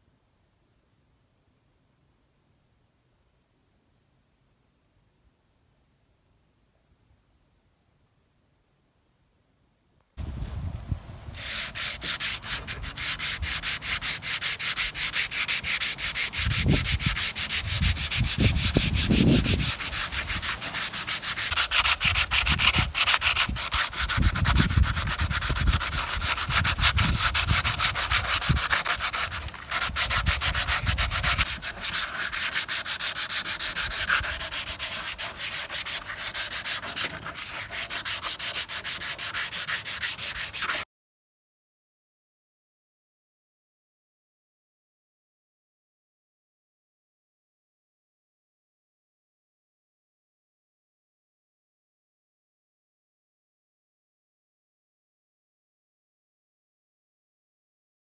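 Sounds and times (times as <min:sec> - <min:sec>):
sandpaper rasping on wood: 0:11.4 - 0:40.8.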